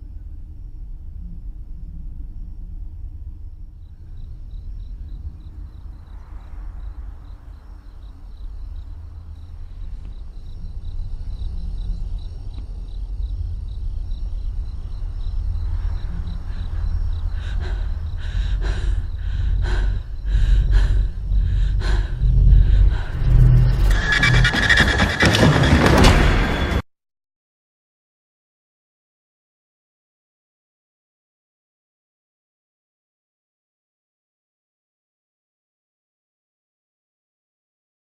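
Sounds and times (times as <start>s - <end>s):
low steady rumble: 0.0s - 24.9s
high rapid pulsing: 15.7s - 26.7s.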